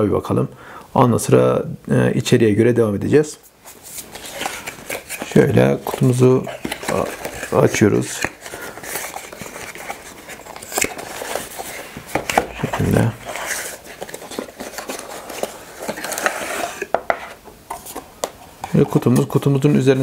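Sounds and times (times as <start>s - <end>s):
cardboard box rustling and tapping: 4.2s - 19.2s.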